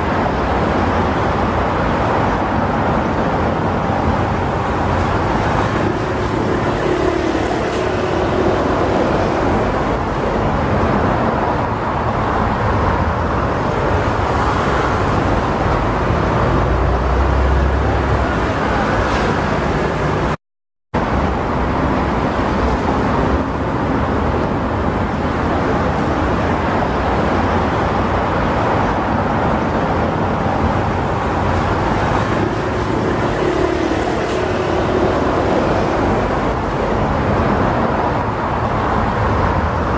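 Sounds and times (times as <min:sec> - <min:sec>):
aircraft engines roaring: 0:00.0 - 0:20.4, 0:21.0 - 0:39.9
ground traffic: 0:00.0 - 0:20.4, 0:21.0 - 0:39.9.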